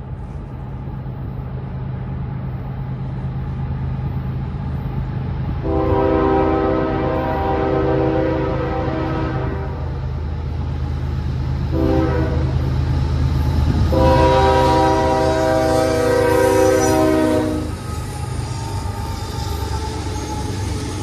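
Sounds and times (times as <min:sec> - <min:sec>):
locomotive air horn chord: 0:05.6 - 0:10.0, 0:11.7 - 0:12.6, 0:13.8 - 0:17.8.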